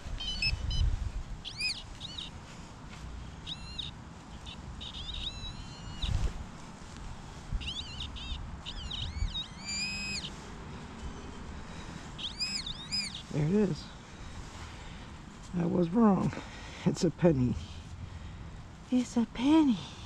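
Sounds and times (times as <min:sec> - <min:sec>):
birds chirping and whistling: 0:00.0 - 0:02.4, 0:03.3 - 0:06.3, 0:07.5 - 0:15.1
buzzy bird call: 0:00.0 - 0:02.4, 0:03.4 - 0:06.3, 0:07.5 - 0:10.5, 0:11.2 - 0:13.5
low wind rumble: 0:00.0 - 0:16.9, 0:17.6 - 0:20.0.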